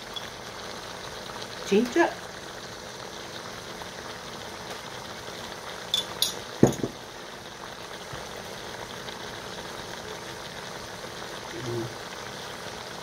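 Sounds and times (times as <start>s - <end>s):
food bubbling in a pot: 0.0s - 13.0s
metal spoon clinking: 6.0s - 6.9s
dull knock: 6.6s - 7.0s.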